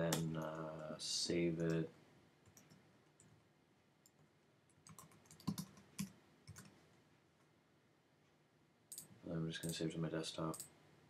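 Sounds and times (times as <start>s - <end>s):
computer keyboard keystrokes: 4.8s - 6.8s.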